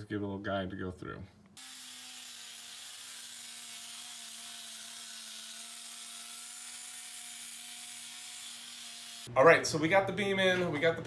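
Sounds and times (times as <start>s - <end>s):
angle grinder grinding steel: 1.6s - 9.3s.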